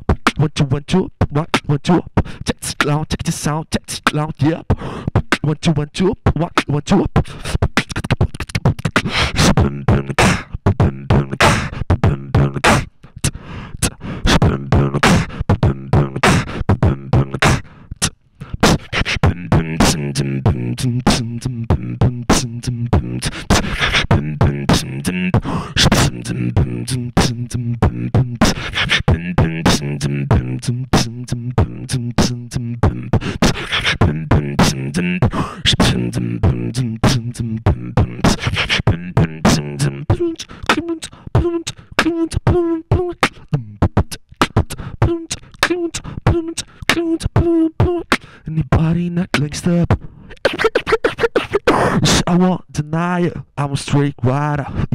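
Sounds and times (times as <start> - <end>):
beatboxing: 0.0 - 54.9.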